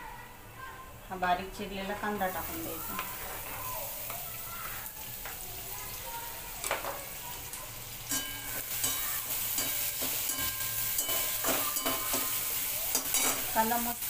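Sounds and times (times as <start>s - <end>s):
onion sizzling in hot oil: 1.1s - 14.0s
metal spoon scraping pan: 8.1s - 13.8s.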